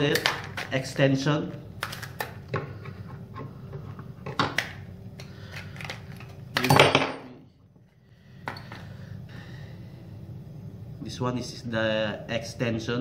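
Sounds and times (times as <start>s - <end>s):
plastic packaging crackling: 0.0s - 1.0s, 1.8s - 2.5s.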